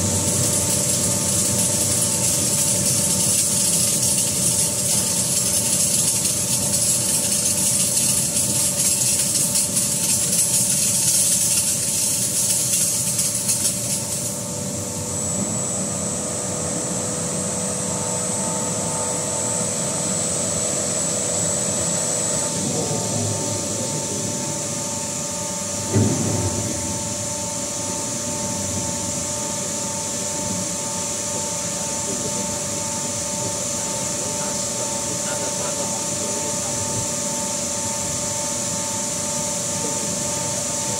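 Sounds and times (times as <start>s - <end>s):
roller rubbing spinning metal: 0.0s - 14.4s
high machine whine: 0.0s - 40.9s
machine hum: 0.0s - 40.9s.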